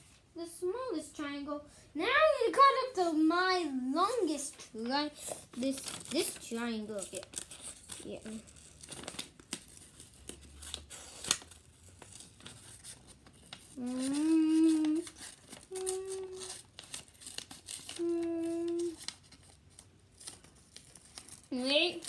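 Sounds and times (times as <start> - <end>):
paper rustling: 4.3 - 22.0
scissors snipping paper: 5.4 - 22.0
child humming: 13.8 - 16.6, 17.9 - 19.0.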